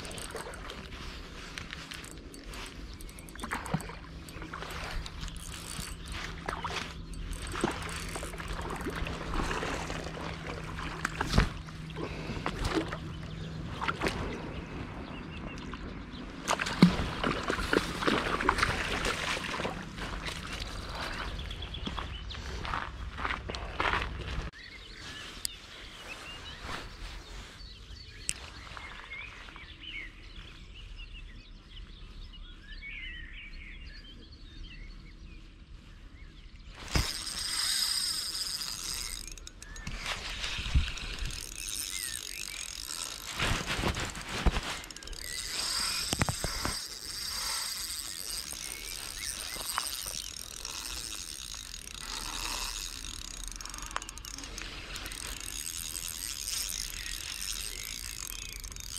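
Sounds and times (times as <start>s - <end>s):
fishing reel clicking and rattling: 0.0s - 11.3s, 36.8s - 58.9s.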